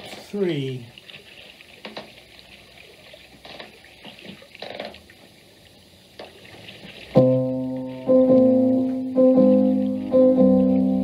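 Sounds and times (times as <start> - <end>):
faint steady hiss: 0.0 - 11.0
piano chord ringing: 7.2 - 11.0.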